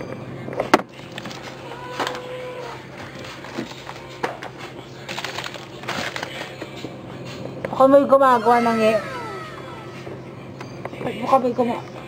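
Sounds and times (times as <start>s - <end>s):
freezer hum: 0.0s - 11.2s
food packages rustling: 5.0s - 6.5s.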